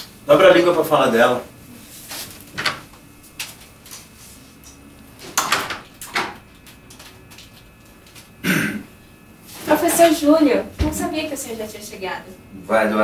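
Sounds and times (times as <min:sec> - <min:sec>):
door opening and shutting: 0:02.5 - 0:02.9, 0:05.2 - 0:06.5.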